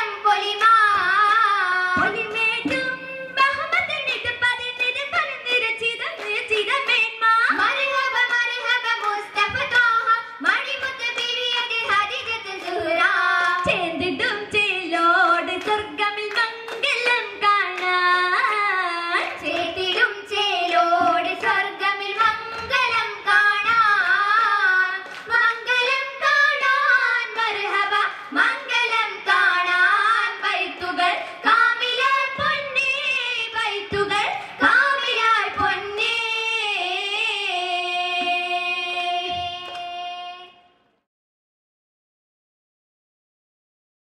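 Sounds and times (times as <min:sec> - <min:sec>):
girls singing into microphones: 0:00.0 - 0:40.8
sharp hand claps: 0:00.5 - 0:18.6, 0:19.2 - 0:26.8, 0:38.2 - 0:39.9.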